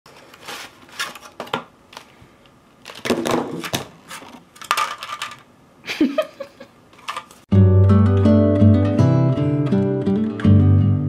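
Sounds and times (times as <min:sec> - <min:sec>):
paint tubes rattling: 0:02.9 - 0:05.5, 0:07.0 - 0:07.4.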